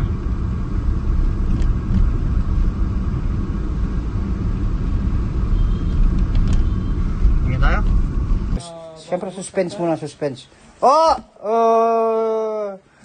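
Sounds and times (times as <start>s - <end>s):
engine and road rumble in car: 0.0s - 8.6s.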